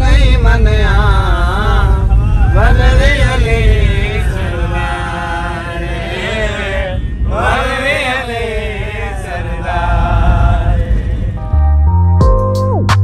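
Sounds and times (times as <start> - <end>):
men singing a chant: 0.0 - 11.4
van engine rumble: 0.0 - 12.4.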